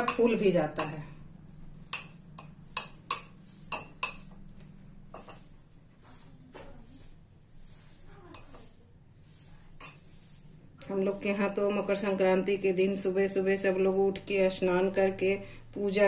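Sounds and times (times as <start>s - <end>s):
metal spoon clinking against bowl: 0.0s - 1.0s, 1.9s - 4.3s, 9.8s - 10.1s.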